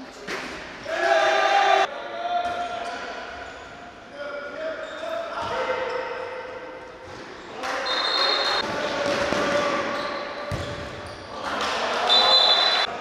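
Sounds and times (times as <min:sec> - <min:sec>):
referee's whistle: 0:07.8 - 0:08.6, 0:12.1 - 0:12.9
ball bouncing on court: 0:10.5 - 0:11.1.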